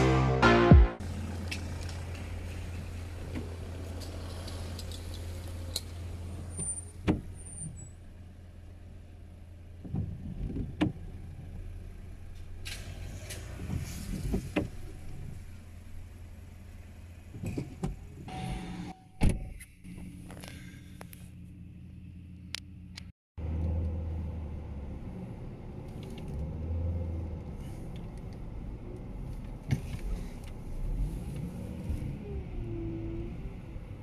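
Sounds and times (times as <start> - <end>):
cars passing on wet street: 0.0 - 6.6, 11.2 - 17.4.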